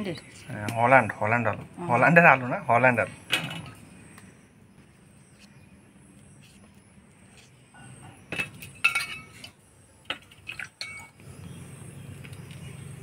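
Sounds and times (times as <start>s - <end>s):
utensils clinking against dishes: 8.3s - 9.5s.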